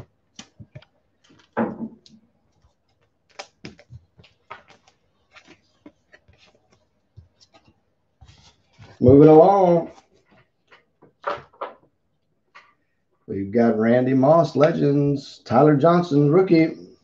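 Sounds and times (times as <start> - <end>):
cards rustling: 0.0 - 1.6, 2.2 - 9.1
cards clicking and tapping: 0.3 - 7.8.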